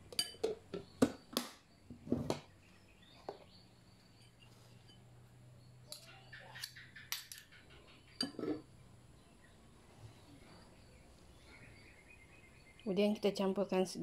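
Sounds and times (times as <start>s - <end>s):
spoon clunking on glass bowl: 0.1s - 0.6s.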